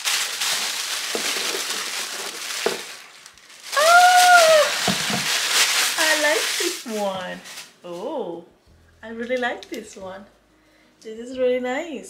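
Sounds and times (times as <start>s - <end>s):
tissue paper rustling: 0.0s - 8.2s.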